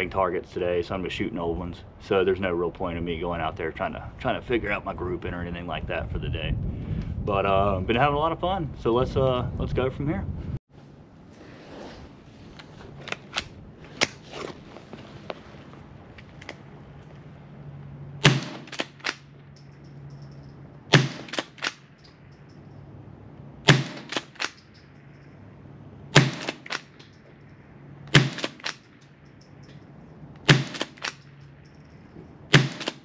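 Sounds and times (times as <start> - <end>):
rifle shots cracking: 18.2 - 19.3, 20.9 - 22.0, 23.6 - 24.7, 26.1 - 27.1, 28.1 - 29.0, 30.4 - 31.4, 32.5 - 33.0.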